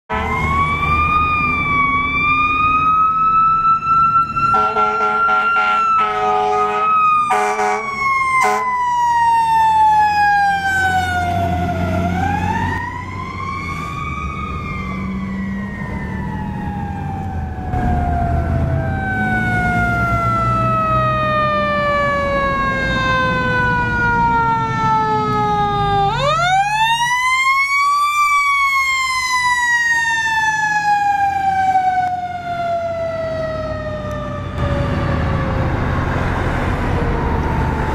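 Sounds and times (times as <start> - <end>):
fire engine siren wailing: 0.1 - 37.9
truck engine rumble: 0.1 - 37.9
short horn blasts: 4.5 - 8.7.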